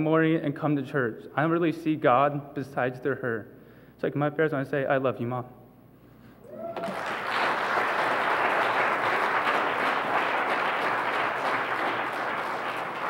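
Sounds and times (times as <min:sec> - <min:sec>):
crowd applauding: 0:06.4 - 0:13.0.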